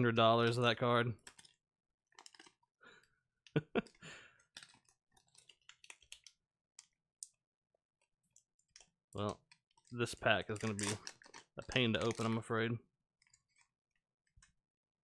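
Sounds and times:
trading cards being handled: 0:02.2 - 0:02.6, 0:08.0 - 0:12.6.

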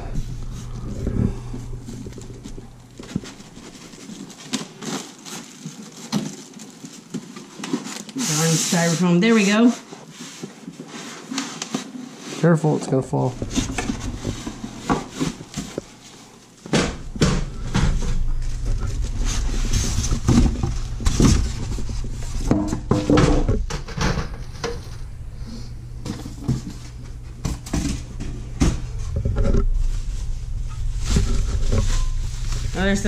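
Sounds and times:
low steady rumble: 0:00.0 - 0:04.4, 0:17.0 - 0:33.0
plastic wrapping crinkling: 0:00.0 - 0:12.2, 0:24.3 - 0:33.0
styrofoam rubbing and squeaking: 0:02.9 - 0:12.5, 0:18.4 - 0:22.5, 0:29.6 - 0:33.0.

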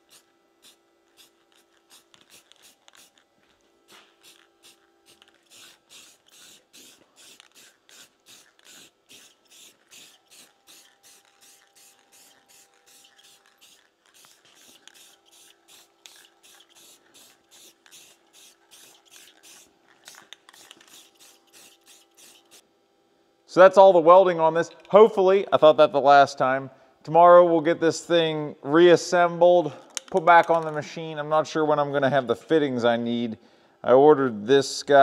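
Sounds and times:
spray paint can hissing: 0:00.0 - 0:03.3, 0:03.9 - 0:22.6
faint steady hum: 0:00.0 - 0:35.0.

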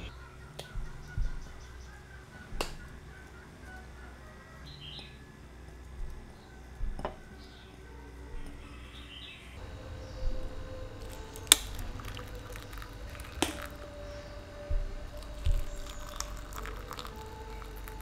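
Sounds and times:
hot water pouring into glass: 0:11.0 - 0:13.9, 0:14.7 - 0:18.0.

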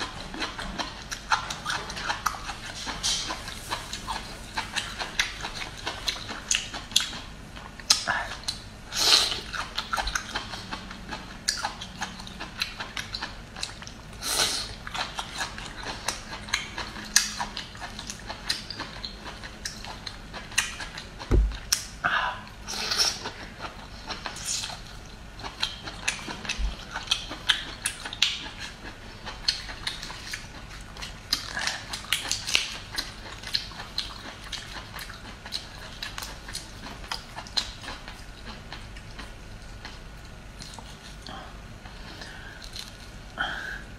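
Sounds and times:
chewing and crunching: 0:00.0 - 0:22.0, 0:22.7 - 0:43.4
low thump: 0:21.3 - 0:21.7.

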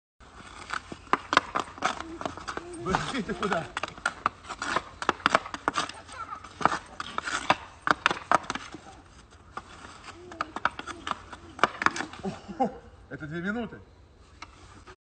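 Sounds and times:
hockey sticks clacking: 0:00.4 - 0:12.4.

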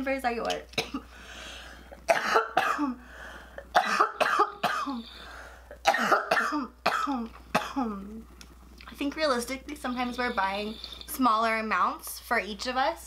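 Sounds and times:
woman coughing hard: 0:00.8 - 0:01.1, 0:02.1 - 0:03.0, 0:03.7 - 0:05.0, 0:05.8 - 0:08.0.

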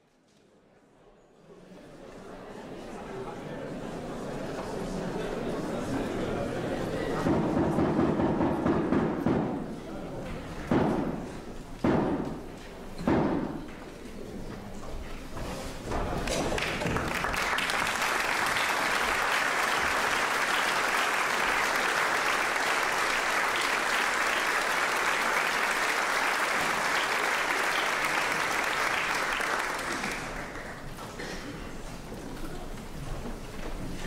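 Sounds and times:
audience applauding: 0:16.2 - 0:31.0.

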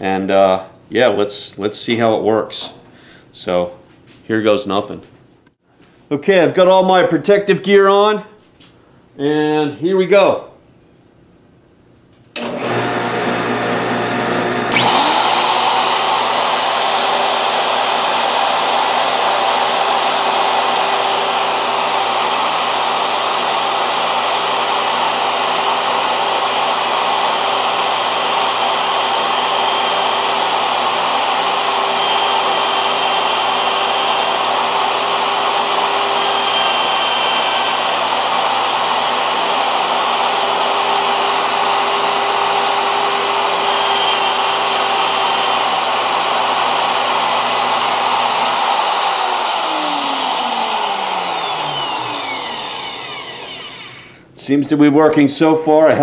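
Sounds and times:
electric router whining: 0:12.4 - 0:54.4
motor spinning down: 0:14.3 - 0:54.3.

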